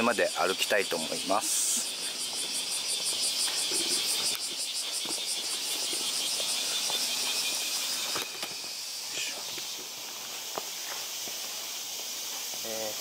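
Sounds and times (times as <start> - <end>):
insects chirping: 0.0 - 13.0
footsteps on stone steps: 1.4 - 13.0.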